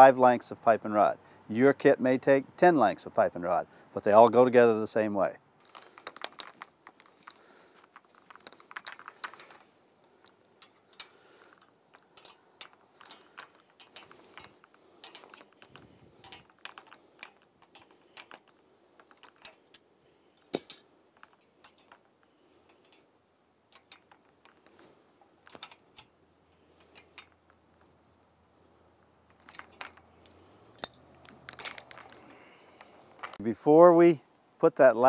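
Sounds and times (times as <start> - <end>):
wrench and pliers tapping metal rod: 29.5 - 32.0.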